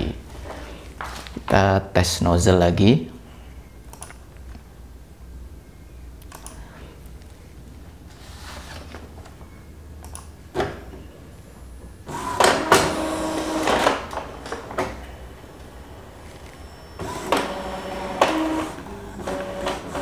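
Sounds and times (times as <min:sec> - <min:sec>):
printer motors whirring: 0:12.0 - 0:20.0.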